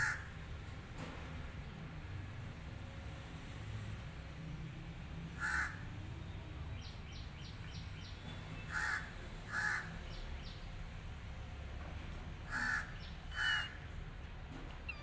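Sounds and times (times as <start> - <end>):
bird calling: 12.5 - 13.9.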